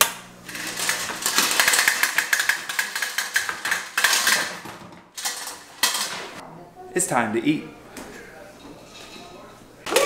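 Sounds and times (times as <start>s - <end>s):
crab shells rattling and clattering: 0.5s - 6.2s.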